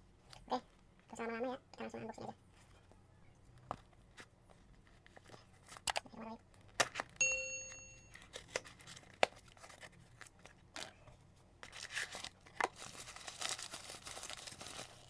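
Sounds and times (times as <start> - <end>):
plastic packaging crinkling: 11.6 - 15.0.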